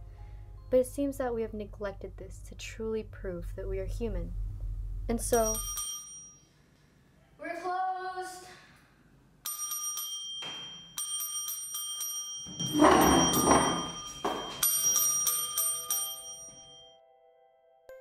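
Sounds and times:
small metal bell ringing: 5.2s - 6.5s, 9.4s - 17.0s.

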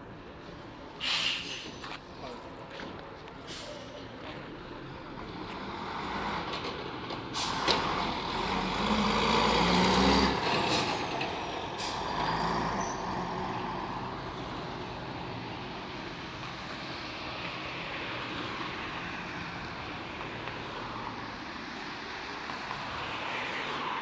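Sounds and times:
diesel bus driving past: 0.0s - 24.0s.

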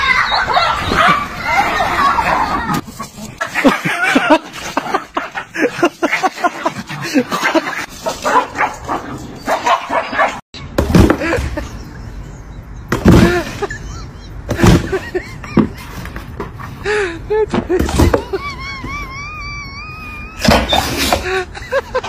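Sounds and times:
dog barking: 0.3s - 1.3s, 8.1s - 10.4s.

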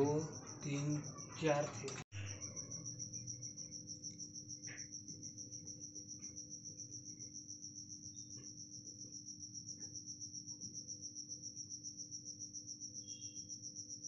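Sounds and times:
cricket chirping: 0.0s - 14.0s.

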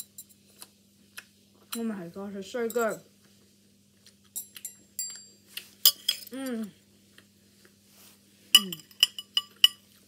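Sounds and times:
person humming: 6.3s - 6.8s, 8.6s - 8.9s
cutlery clinking on ceramic plate: 8.6s - 9.9s.

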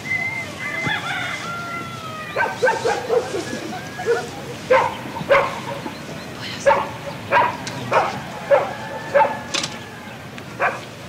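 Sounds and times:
dog barking: 2.3s - 5.9s, 6.6s - 9.6s, 10.6s - 10.9s.

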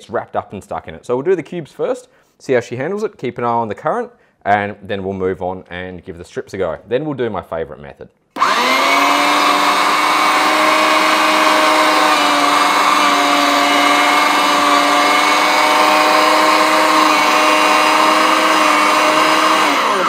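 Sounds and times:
electric meat mincer whining: 8.4s - 20.0s.

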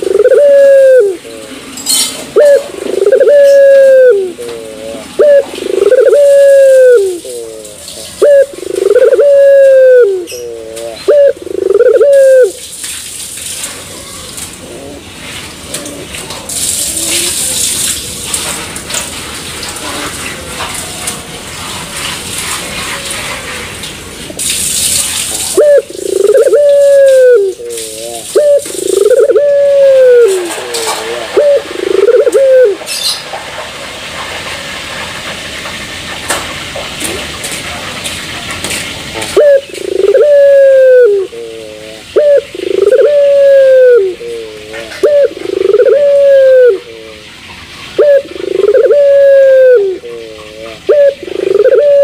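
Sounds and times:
dove cooing: 0.0s - 12.7s, 14.0s - 17.6s, 25.3s - 33.2s, 39.2s - 52.0s
faint hiss: 0.0s - 52.0s.

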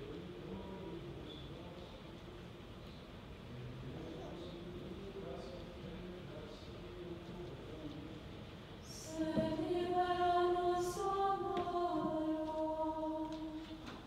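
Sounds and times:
liturgical chant: 8.7s - 14.0s.

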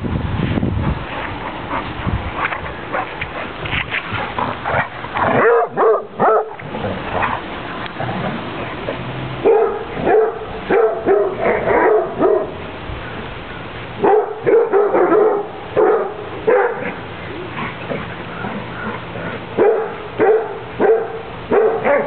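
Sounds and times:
dog barking: 5.3s - 6.6s, 9.4s - 12.6s, 14.0s - 17.0s, 19.6s - 22.0s.

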